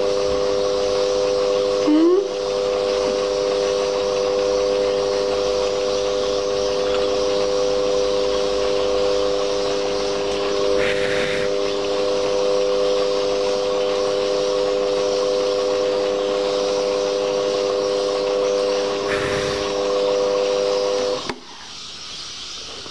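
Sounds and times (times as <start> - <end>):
lathe motor whine: 0.0 - 22.9
harsh cutting scrape: 10.8 - 11.6, 19.1 - 19.8.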